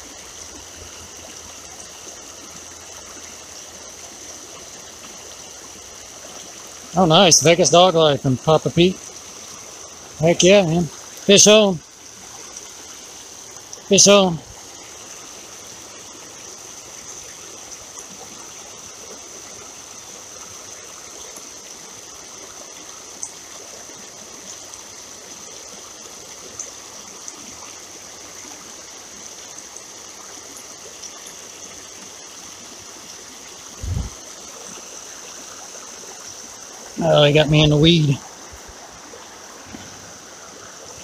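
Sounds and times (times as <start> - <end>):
creek water running over riffles: 0.0 - 41.0
short low thump: 33.8 - 34.2.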